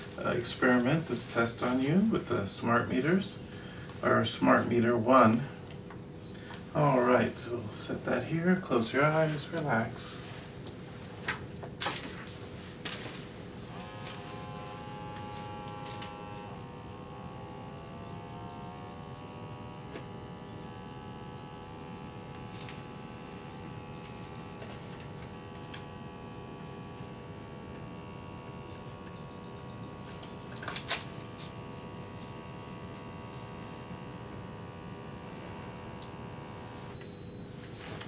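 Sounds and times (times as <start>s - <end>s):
cuff pump humming: 11.4s - 38.0s.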